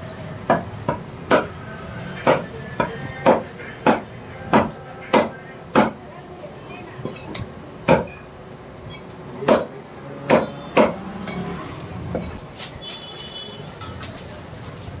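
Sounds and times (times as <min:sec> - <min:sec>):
cleaver chopping on wooden block: 0:00.5 - 0:01.5, 0:02.2 - 0:06.0, 0:09.4 - 0:11.0.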